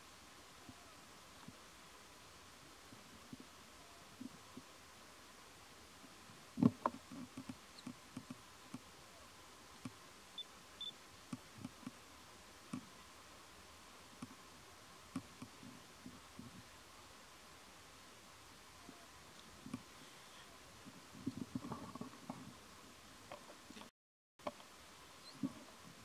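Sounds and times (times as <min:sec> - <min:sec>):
faint clicks and soft knocks: 0:06.6 - 0:08.9, 0:11.3 - 0:12.0, 0:15.1 - 0:16.6, 0:18.9 - 0:19.9, 0:20.8 - 0:22.6, 0:23.2 - 0:24.7.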